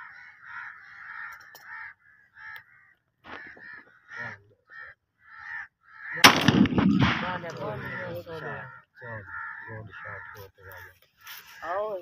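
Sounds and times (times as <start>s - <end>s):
birds calling: 0.0s - 12.0s
shotgun blast with echo: 6.2s - 7.9s.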